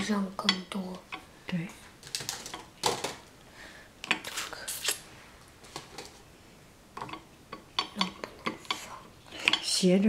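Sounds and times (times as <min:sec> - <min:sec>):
dishes and cutlery clinking: 0:07.0 - 0:09.8.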